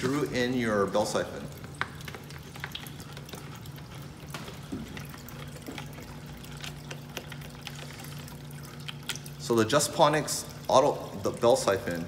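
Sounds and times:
aquarium equipment humming: 0.0 - 12.0
water trickling: 0.0 - 12.0.

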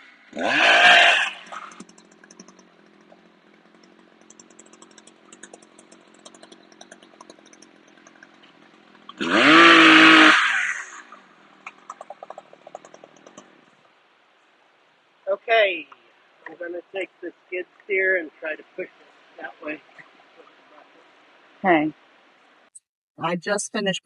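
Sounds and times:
chainsaw idling and revving: 0.0 - 13.4.

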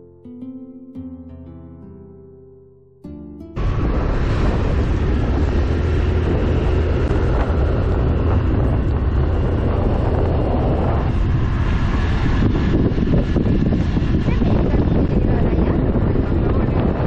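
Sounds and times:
heavy low rumble: 3.6 - 17.0
motorcycle road noise: 3.6 - 17.0
wind rush over microphone: 3.6 - 17.0.

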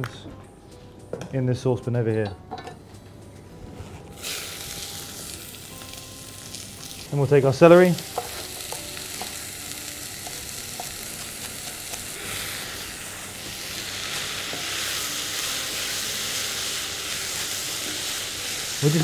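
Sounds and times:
vegetables sizzling in oil: 4.2 - 19.0.

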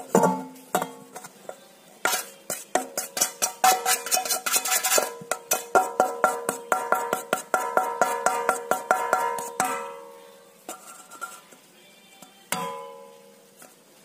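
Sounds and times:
utensil scraping steel bowl: 0.0 - 10.0, 10.6 - 11.6
steel bowls clinking: 0.0 - 11.5.

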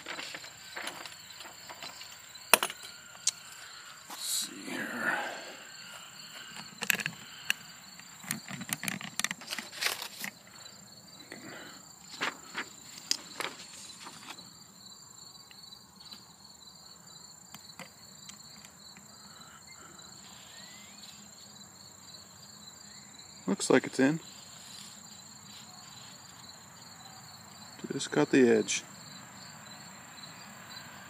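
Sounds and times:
crickets chirping: 0.0 - 31.0
paper rustling and clicking: 8.2 - 10.4, 12.1 - 14.4.

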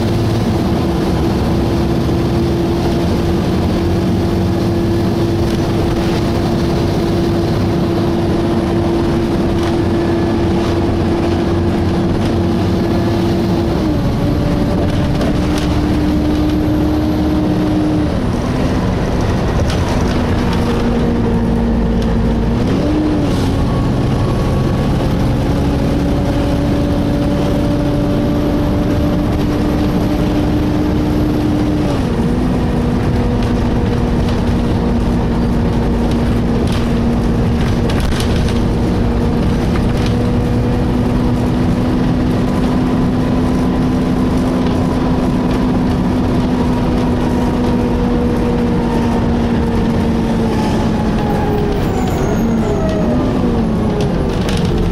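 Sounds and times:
bus cooling fan whining: 0.0 - 54.9.

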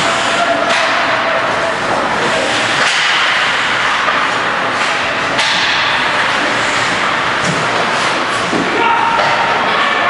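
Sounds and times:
hockey sticks and puck clacking: 0.5 - 1.5, 2.2 - 10.0
skates carving ice: 2.2 - 9.9.

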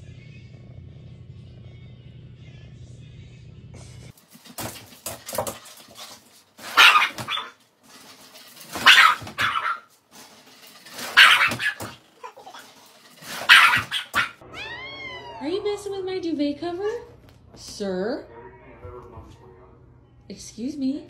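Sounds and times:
dogs yipping: 5.9 - 7.6, 8.6 - 10.0, 10.8 - 15.4
dogs barking: 6.6 - 7.6, 8.6 - 9.9, 10.9 - 14.4.

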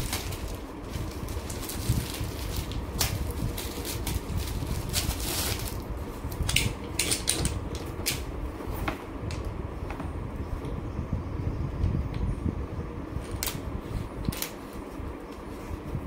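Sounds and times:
plastic packaging crinkling: 0.0 - 7.3
steady low hum: 0.0 - 16.0.

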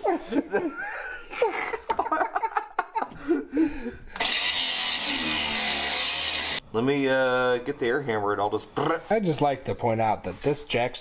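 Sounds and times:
angle grinder cutting steel: 4.2 - 6.6.

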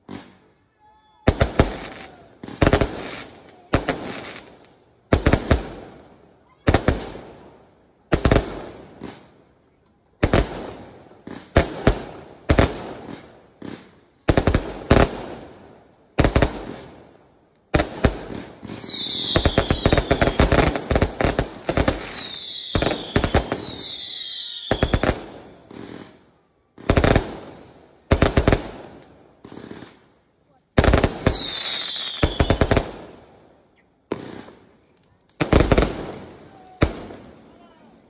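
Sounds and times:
firework bangs: 17.8 - 26.2, 30.8 - 33.2.

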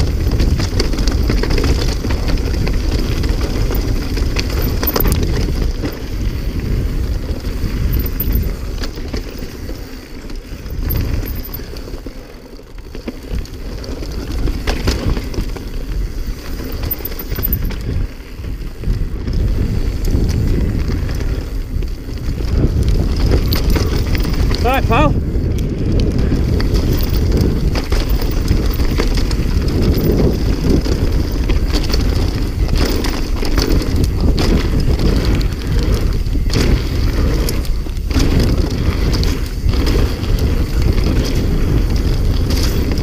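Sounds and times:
bike rattling: 0.0 - 43.0
bike tyres rumbling over rock: 0.0 - 43.0
wind buffeting microphone: 0.0 - 43.0.

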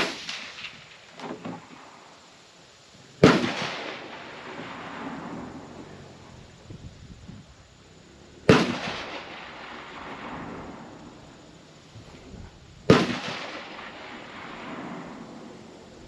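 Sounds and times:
gunshots with echo: 3.2 - 5.4, 8.5 - 10.9, 12.9 - 15.4.

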